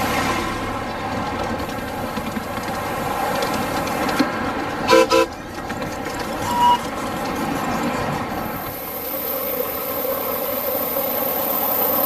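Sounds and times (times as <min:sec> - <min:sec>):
train running noise: 0:00.0 - 0:12.0
miniature train whistle toots: 0:04.9 - 0:05.3, 0:06.4 - 0:06.9.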